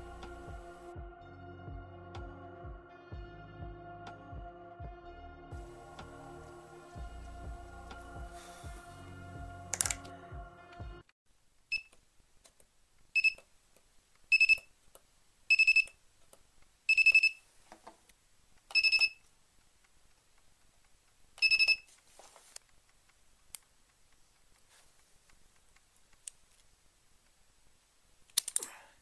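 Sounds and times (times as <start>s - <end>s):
faint handling clicks: 21.9s - 27.4s.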